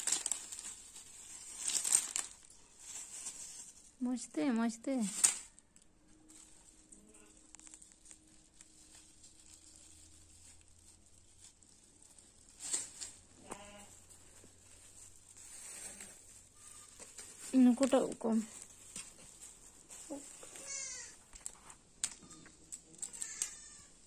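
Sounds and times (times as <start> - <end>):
plastic bag rustling: 0.0 - 24.0.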